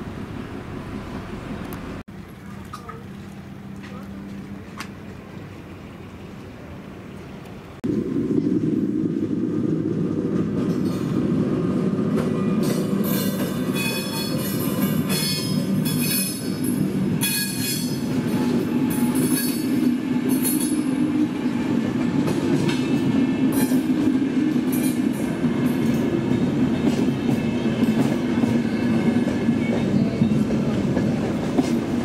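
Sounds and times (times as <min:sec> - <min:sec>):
high metallic squeals: 0:13.1 - 0:20.8.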